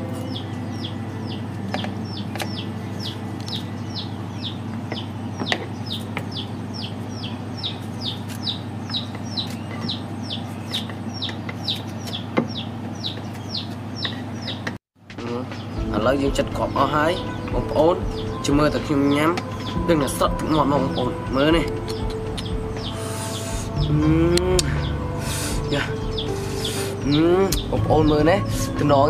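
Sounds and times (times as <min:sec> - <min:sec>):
bird chirping: 0:00.0 - 0:29.0
low steady hum: 0:15.2 - 0:29.0.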